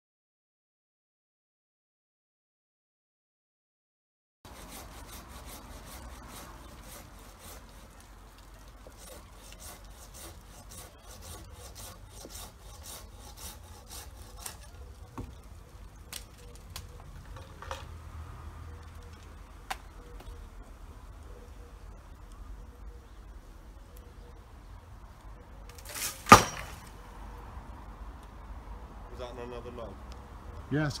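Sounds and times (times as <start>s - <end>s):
hand saw cutting wood: 4.5s - 14.8s, 25.8s - 26.8s.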